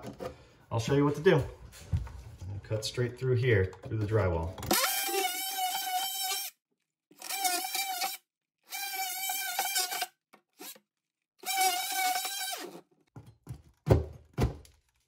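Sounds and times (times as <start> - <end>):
oscillating tool cutting drywall: 4.7 - 10.8, 11.4 - 12.8.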